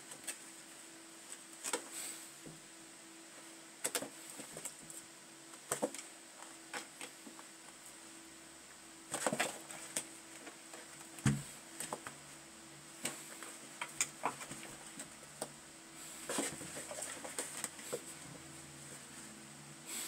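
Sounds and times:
dull thump: 11.2 - 11.5.

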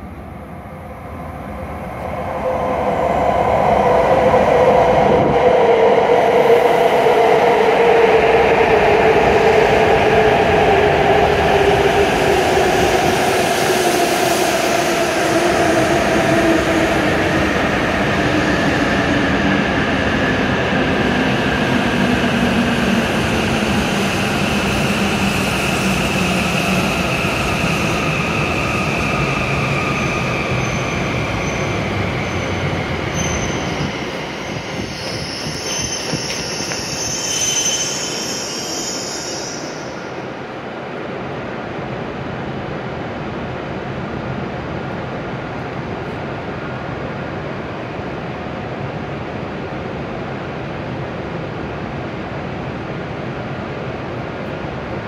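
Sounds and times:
train braking with falling whine: 24.9 - 40.2.

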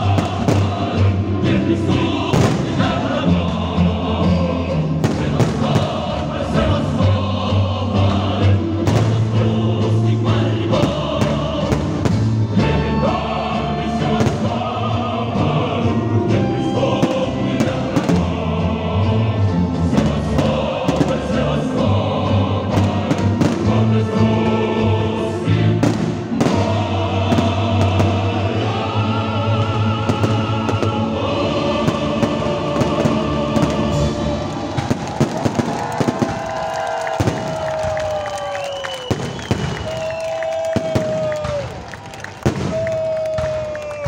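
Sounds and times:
fireworks banging and crackling: 0.0 - 1.1, 2.2 - 3.0, 5.0 - 6.3, 8.8 - 9.4, 10.7 - 12.5, 14.1 - 14.6, 17.0 - 18.4, 19.9 - 21.5, 22.7 - 24.2, 25.8 - 28.7, 29.5 - 31.2, 31.8 - 44.0
choral music: 0.0 - 44.0.

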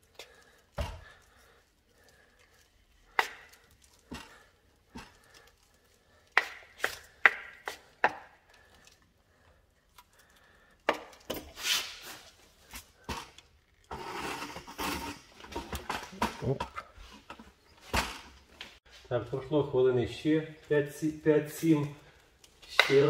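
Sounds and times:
trowel rasping scrape: 13.9 - 15.4.

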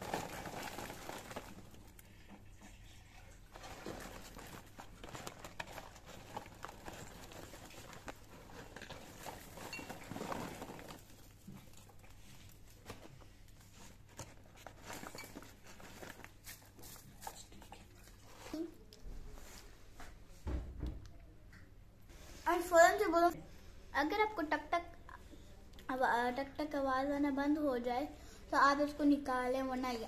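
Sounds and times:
popcorn falling into bowl: 0.0 - 1.9
paper bag rustling: 0.0 - 2.4, 3.4 - 17.5.

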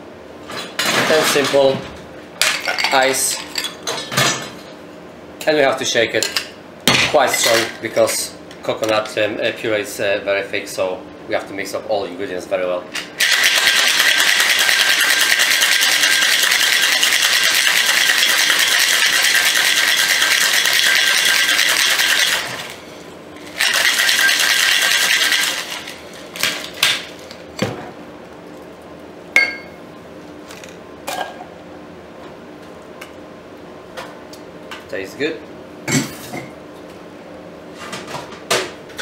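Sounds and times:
ice rattling in cocktail shaker: 13.2 - 22.8, 23.5 - 26.0.

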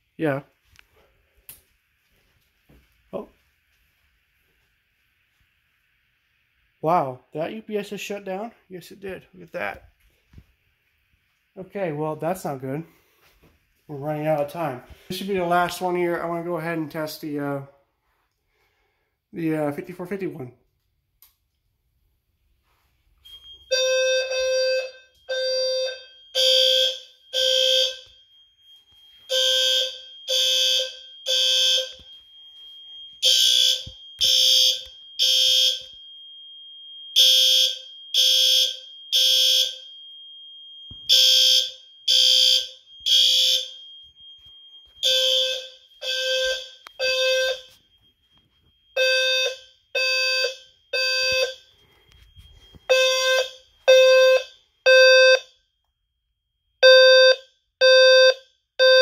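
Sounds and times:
fire alarm horn blasts: 14.0 - 17.2, 23.2 - 36.4, 37.0 - 55.7, 56.8 - 59.0.

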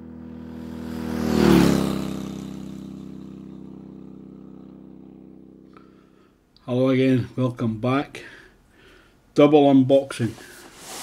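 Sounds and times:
motorcycle passing by: 0.0 - 6.4.

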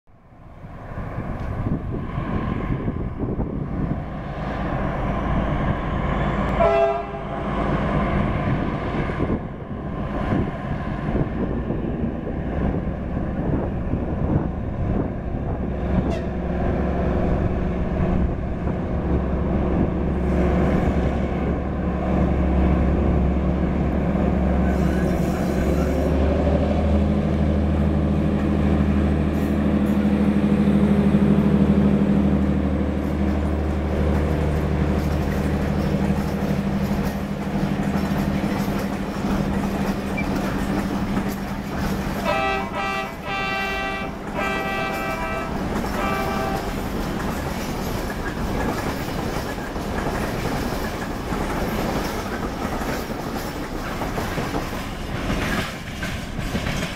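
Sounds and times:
diesel locomotive engine under load: 0.1 - 56.9
locomotive horn blast: 6.5 - 7.5, 42.2 - 46.9.

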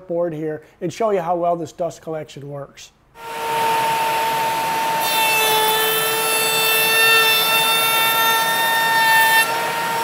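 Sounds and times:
shop vacuum running: 3.2 - 6.7, 9.0 - 10.0
trim router running: 3.2 - 6.7, 8.9 - 10.0
router bit cutting wood: 3.2 - 10.0.

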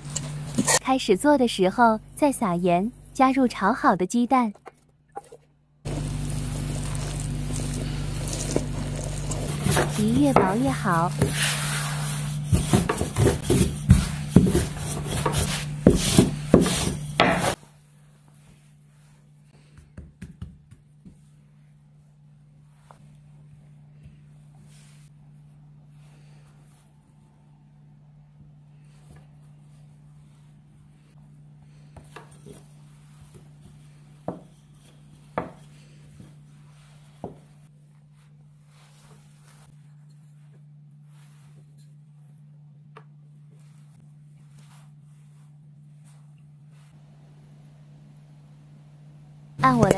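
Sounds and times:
steady low hum: 0.0 - 3.8, 5.7 - 49.9
rolling pin knocking and rubbing: 6.7 - 17.6.

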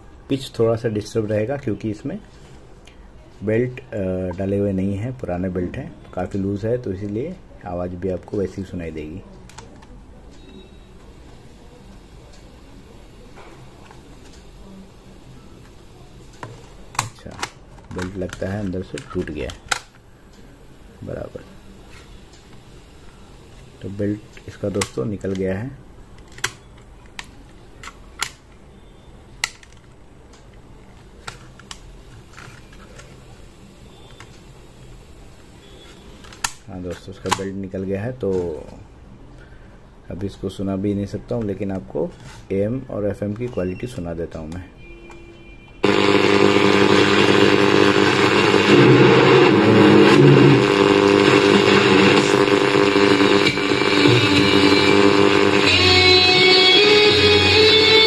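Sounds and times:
radio static: 45.8 - 58.0
steady buzzing hum: 45.8 - 58.0.

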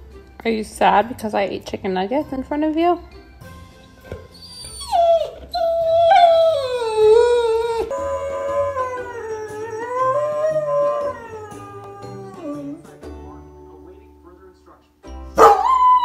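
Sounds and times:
background music: 0.0 - 16.0
dog howling: 4.3 - 12.9, 15.4 - 16.0.

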